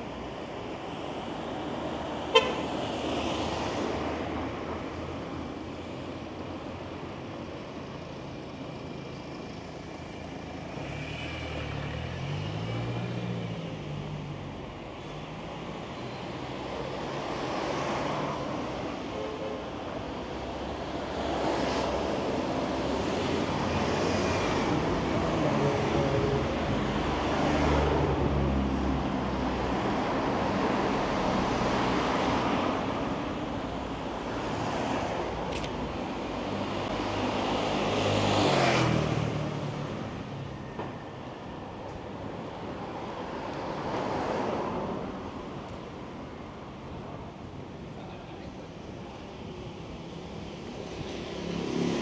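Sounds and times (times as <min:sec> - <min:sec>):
cars passing close by: 0:10.4 - 0:14.8, 0:20.3 - 0:46.4, 0:49.8 - 0:52.0.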